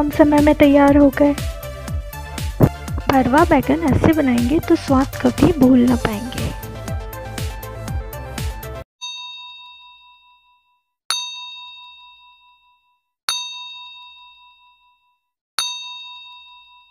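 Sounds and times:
background music: 0.0 - 8.8
bell dings: 9.0 - 16.9.

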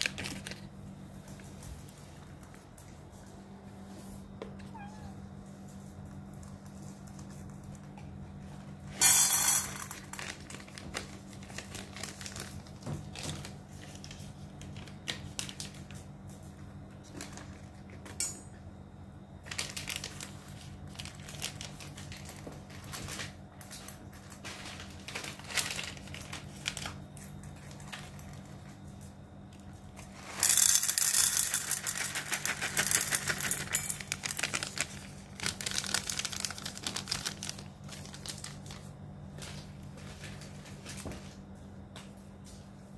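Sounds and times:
plastic pouch crinkling: 0.0 - 0.8, 10.0 - 12.8, 19.4 - 23.4, 24.2 - 28.4, 31.7 - 41.0.

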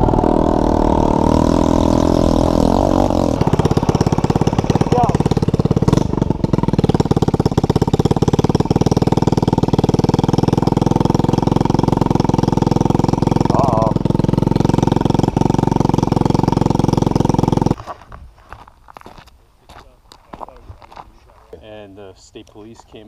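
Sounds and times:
quad bike engine running: 0.0 - 17.8.

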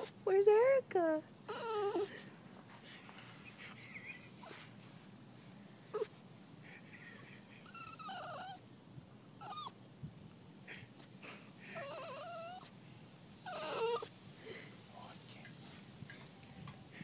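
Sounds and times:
dog whining: 0.0 - 0.2, 1.3 - 2.3, 5.9 - 6.2, 7.2 - 8.6, 9.3 - 9.8, 10.7 - 12.8, 13.4 - 14.2.

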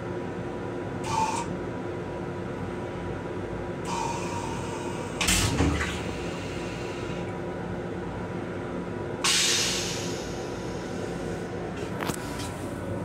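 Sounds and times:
railcar steady hum: 0.0 - 5.4, 6.1 - 13.0
toilet flush whoosh and thump: 5.2 - 6.2.

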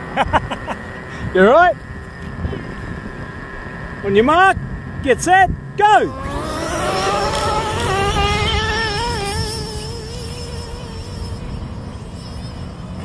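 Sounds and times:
nitro engine revving high: 5.8 - 13.0.

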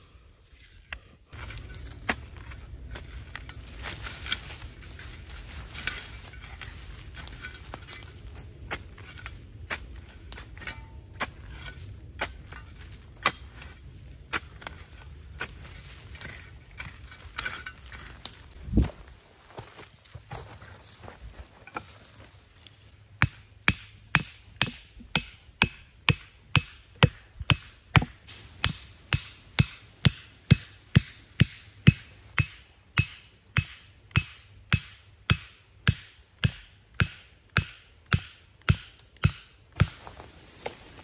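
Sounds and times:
hatchet hammering wooden stakes: 1.3 - 18.4, 23.1 - 40.8.

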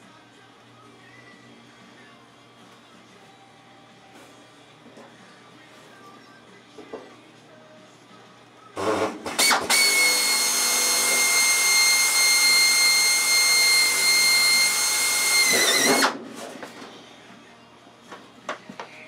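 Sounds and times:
air drill whining: 8.8 - 16.2.

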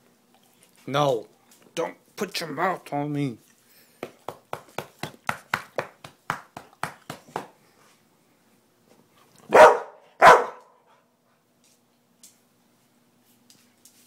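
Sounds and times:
dog barking: 9.5 - 10.9.

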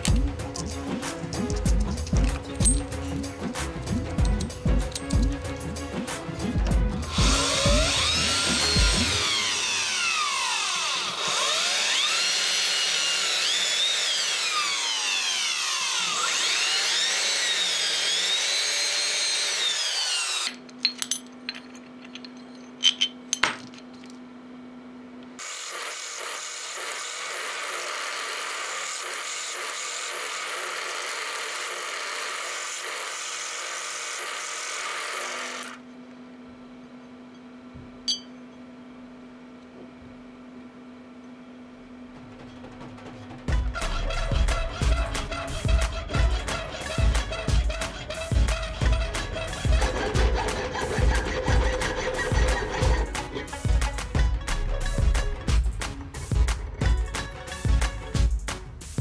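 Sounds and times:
motor humming: 0.0 - 20.8, 43.5 - 54.1
electric drill boring into steel: 7.0 - 20.7, 25.4 - 35.8, 43.7 - 53.6
cutting tool squealing on metal: 43.6 - 53.8.

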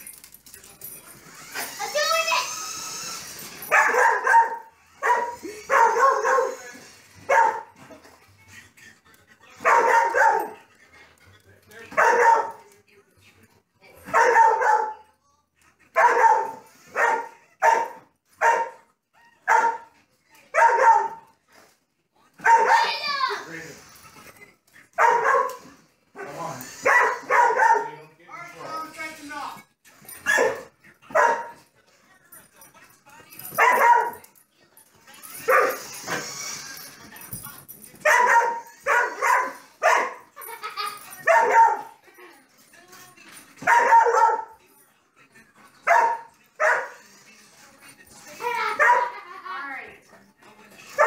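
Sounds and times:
dog barking: 3.7 - 6.6, 7.2 - 7.8, 9.6 - 10.6, 11.9 - 12.6, 14.1 - 15.0, 16.0 - 18.8, 19.4 - 21.3, 22.4 - 22.9, 25.0 - 28.0, 30.2 - 31.6, 33.5 - 34.2, 35.5 - 35.9, 38.0 - 40.3, 41.2 - 42.0, 43.6 - 44.6, 45.8 - 47.0, 48.8 - 49.2.

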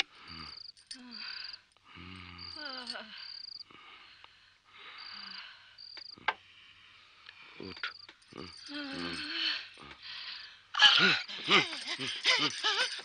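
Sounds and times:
crickets chirping: 0.0 - 13.0
person's wordless vocal sounds: 7.6 - 10.0.

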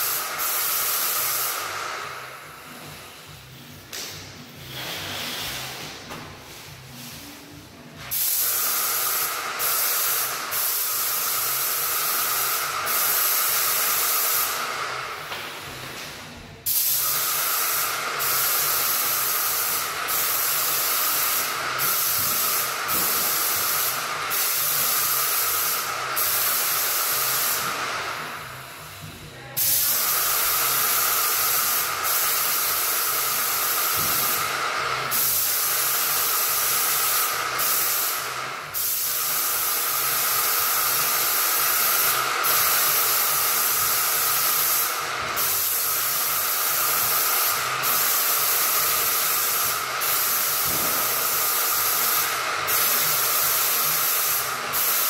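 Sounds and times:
paint sprayer hissing: 0.0 - 16.0, 16.6 - 55.0.

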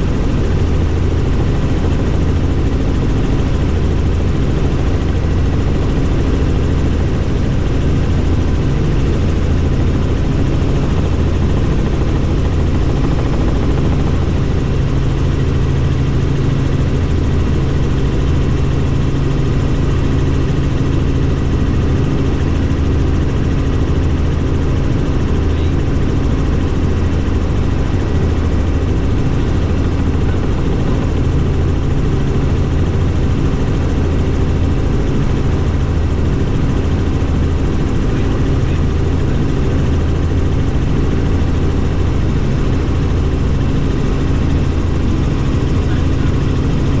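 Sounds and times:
helicopter engine and rotor drone: 0.0 - 47.0.

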